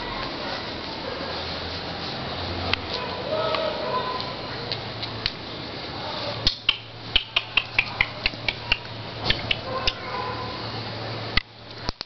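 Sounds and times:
puppy claws clicking on tile: 0:06.5 - 0:10.0.

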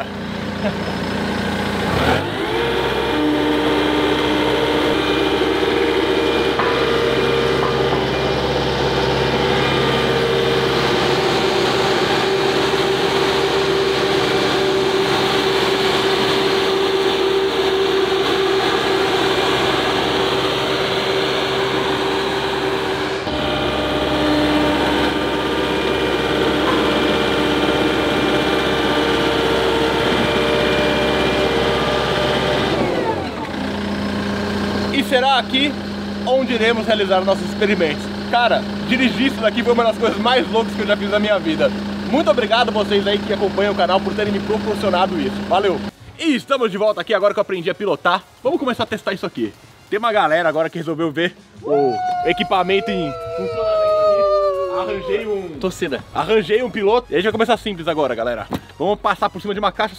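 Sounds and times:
steady whine: 0:00.0 - 0:46.1
road roller engine running: 0:00.0 - 0:46.3.

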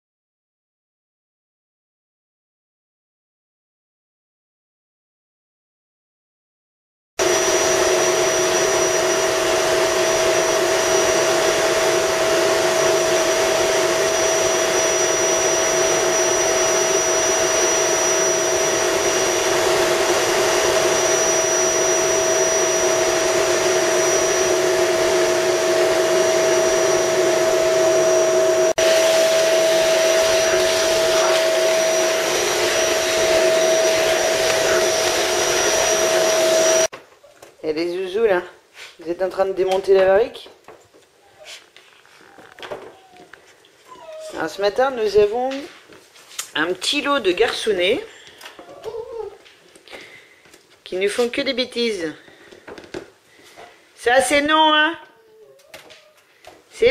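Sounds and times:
vacuum cleaner running: 0:07.2 - 0:36.9, 0:41.5 - 0:45.8, 0:46.5 - 0:49.0, 0:53.4 - 0:55.1.

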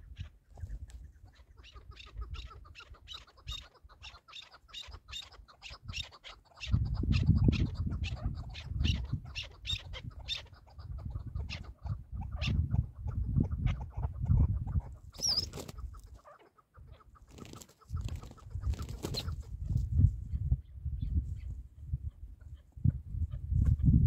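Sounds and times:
partridge clucking calls: 0:00.0 - 0:19.5.

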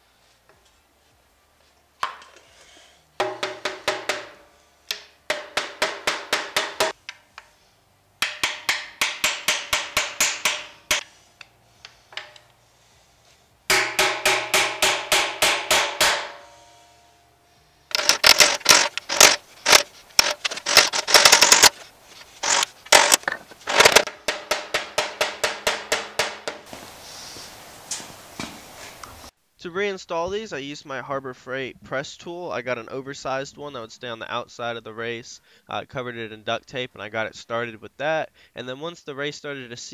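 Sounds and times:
rubber mallet tapping metal: 0:03.2 - 0:07.0, 0:08.2 - 0:11.0, 0:13.7 - 0:16.4, 0:22.4 - 0:26.7.

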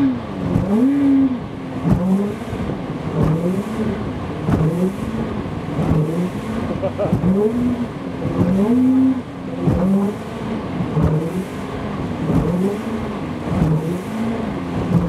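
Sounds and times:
outboard motor revving: 0:00.0 - 0:15.0
hull thumping on water: 0:00.4 - 0:00.9, 0:01.7 - 0:03.6, 0:04.2 - 0:04.8, 0:14.7 - 0:15.0.

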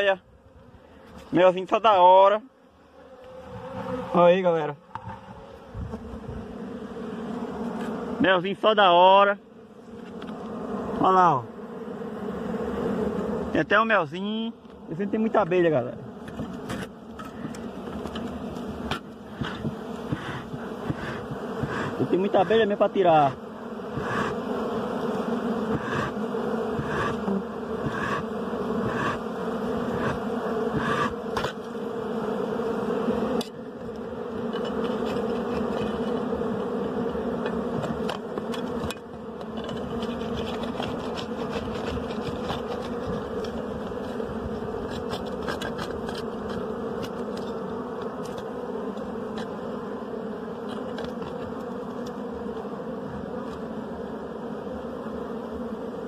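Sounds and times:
bees buzzing: 0:00.0 - 0:56.0.

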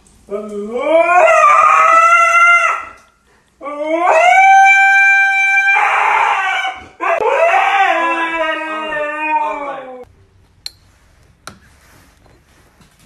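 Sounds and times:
husky howling: 0:00.3 - 0:03.0, 0:03.6 - 0:10.1.

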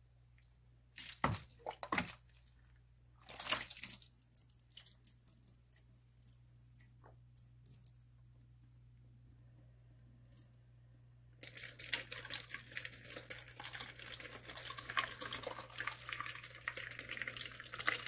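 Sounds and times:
faint low hum: 0:00.0 - 0:18.0
mash sloshing into filter: 0:01.0 - 0:02.6
wet mash squelching: 0:01.0 - 0:06.5.

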